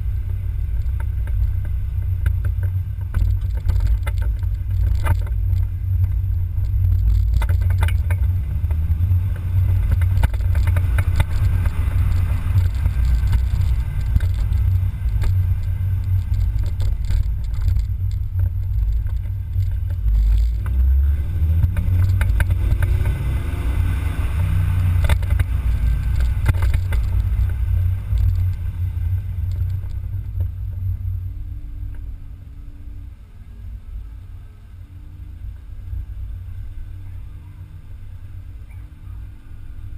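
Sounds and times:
light rattles: 0.0s - 23.2s, 24.6s - 31.2s
car engine revving: 0.0s - 39.9s
wind and road noise: 0.0s - 39.9s.

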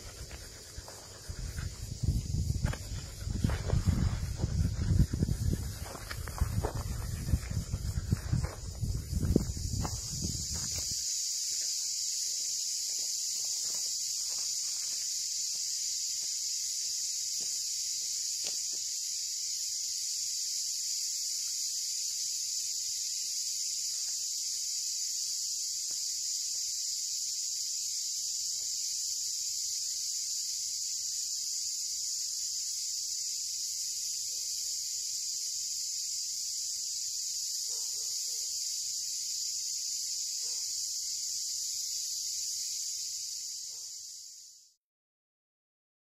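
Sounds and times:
insects droning: 0.0s - 44.8s
footsteps on dry track: 0.2s - 11.7s.

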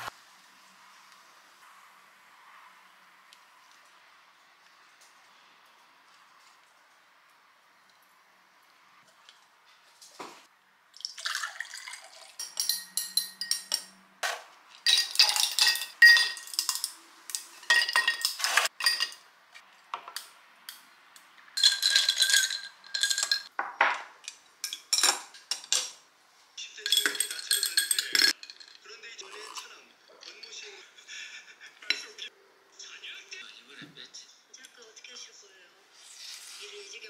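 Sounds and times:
water poured into a glass: 11.0s - 12.4s
metal stirrer clinking on glass: 12.2s - 14.0s, 14.8s - 19.2s, 21.6s - 23.5s, 26.8s - 29.6s
ice cubes dropping into glass: 14.9s - 16.9s, 21.6s - 23.5s, 26.9s - 28.8s.

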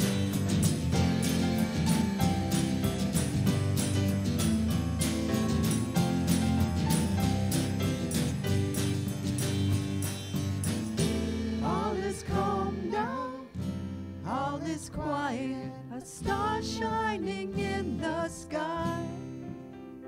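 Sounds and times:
worship band playing: 0.0s - 13.6s
person singing: 11.6s - 13.6s, 14.2s - 19.3s.

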